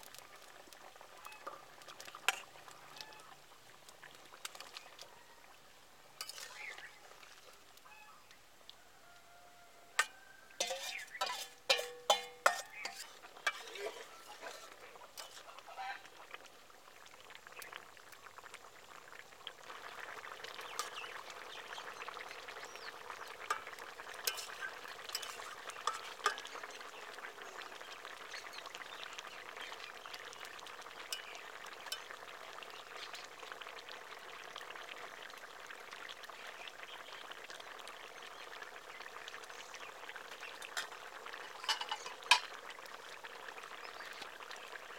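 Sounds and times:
curry sizzling and bubbling: 0.0 - 44.9
metal spatula scraping wok: 2.2 - 2.5, 6.2 - 7.6, 10.0 - 15.6, 23.4 - 26.8, 40.8 - 42.5.

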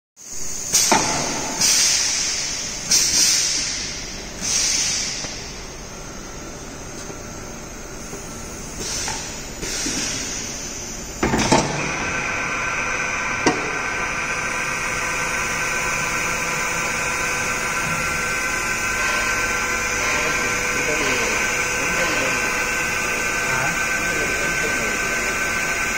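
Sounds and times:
machine high whine: 0.4 - 25.9
loud machine clunk: 0.8 - 2.3, 11.2 - 12.2.

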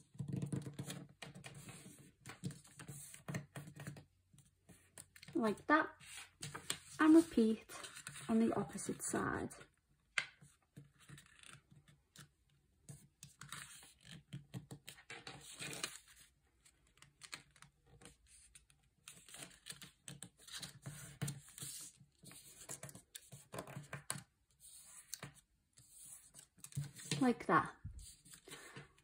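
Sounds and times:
fingers tapping and scraping paper: 0.0 - 4.1, 16.8 - 27.4
paper rustling and crinkling: 14.8 - 16.3.

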